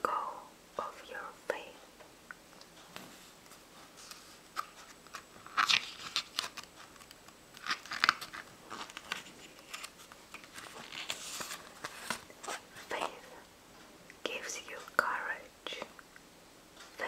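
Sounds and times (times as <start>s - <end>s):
book pages flipping: 3.0s - 13.2s.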